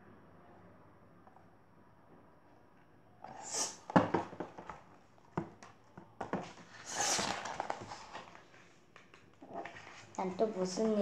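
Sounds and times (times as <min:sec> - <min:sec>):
book pages turning: 0:06.5 - 0:10.4.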